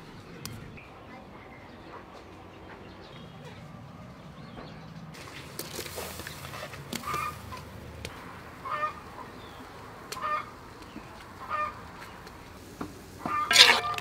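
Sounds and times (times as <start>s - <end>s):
chicken clucking: 6.0s - 7.7s, 8.6s - 12.2s, 13.2s - 14.0s
pieces dropping into metal wok: 13.3s - 14.0s.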